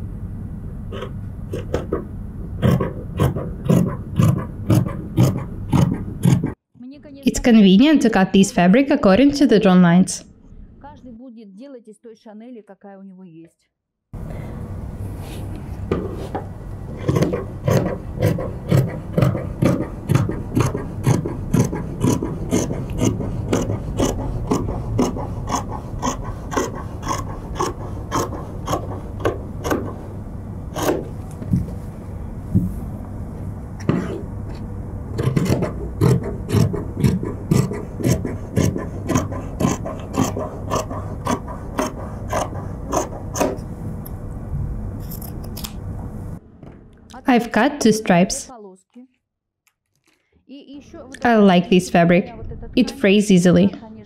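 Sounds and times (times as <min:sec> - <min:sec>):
scissors snipping fabric: 0:02.6 - 0:06.6, 0:17.0 - 0:30.0, 0:30.8 - 0:31.1, 0:35.2 - 0:43.6.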